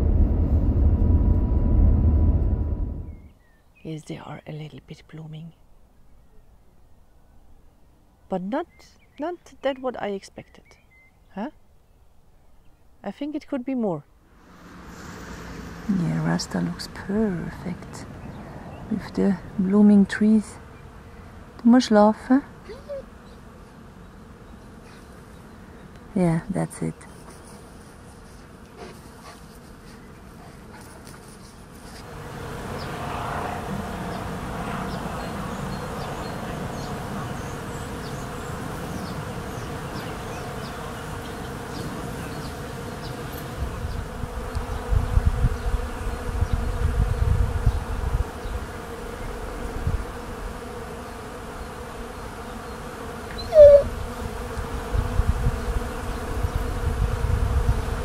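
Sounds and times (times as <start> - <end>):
low rumbling noise: 0.0 - 3.3, 14.3 - 18.9
bees buzzing: 14.3 - 58.0
brief rising note: 14.4 - 16.3.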